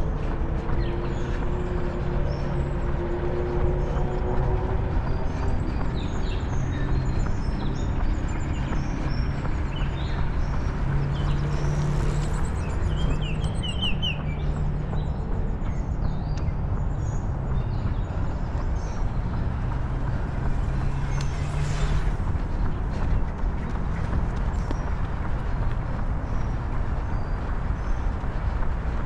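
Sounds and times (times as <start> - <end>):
road traffic rumble: 0.0 - 29.0.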